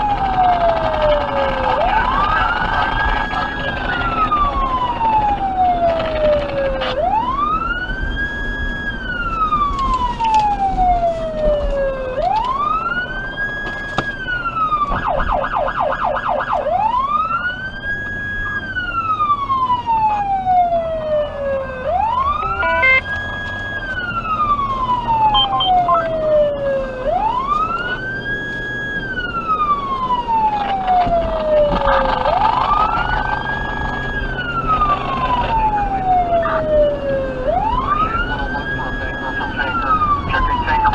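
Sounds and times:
siren fast yelp: 0.0s - 11.6s, 14.4s - 40.9s
electronic siren wailing: 0.0s - 40.9s.

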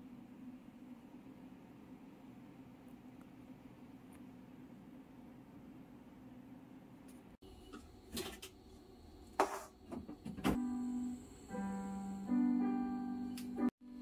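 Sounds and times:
soft piano music: 10.6s - 14.0s.

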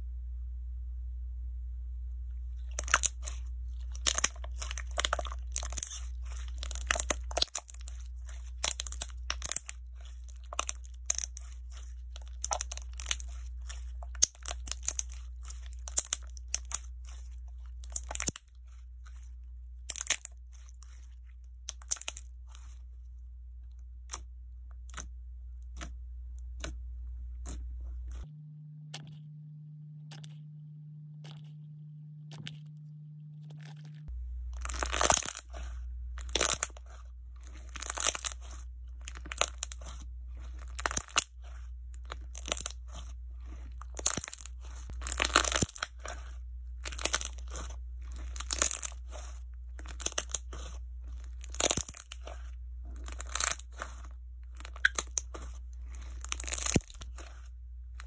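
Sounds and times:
steady low hum: 0.0s - 58.0s
slime squeezed crackling: 2.6s - 23.0s, 33.5s - 58.0s.

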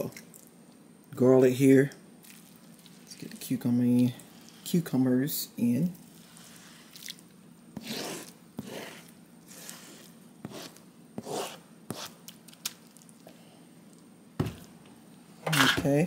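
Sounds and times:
utensil scraping into bowl: 6.1s - 7.1s, 7.8s - 12.2s.

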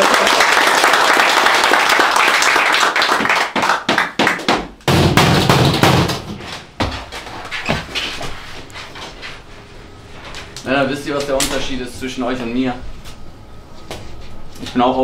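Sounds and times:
people clapping hands: 0.0s - 6.6s
knocks and thumps: 4.4s - 8.4s.

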